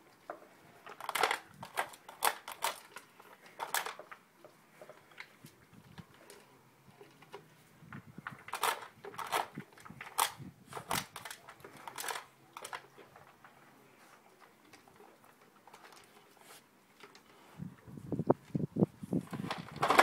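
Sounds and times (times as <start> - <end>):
dog crunching dry food: 0.8 - 4.2, 8.2 - 13.6.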